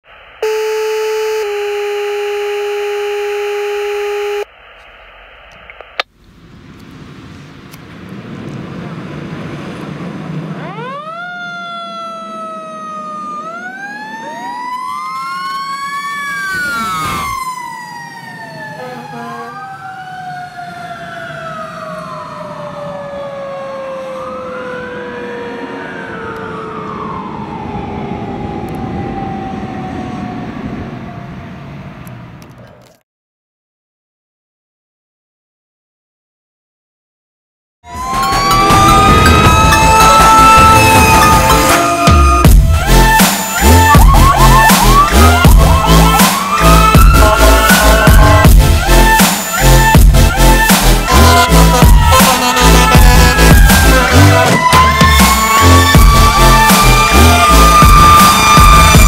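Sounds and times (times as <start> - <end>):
steady electronic tone: 0.1 - 4.6
fire engine horn blast: 0.4 - 4.5, 18.6 - 19.9, 37.9 - 58.9
fire engine sirens wailing: 0.4 - 4.5, 8.7 - 32.4, 37.9 - 59.0.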